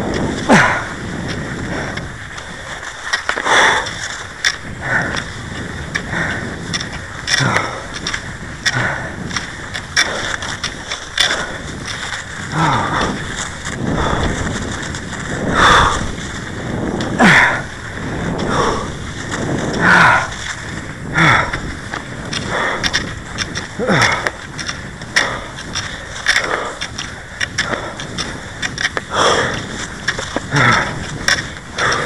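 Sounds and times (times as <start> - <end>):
skis gliding and scraping on snow: 0.0 - 32.0.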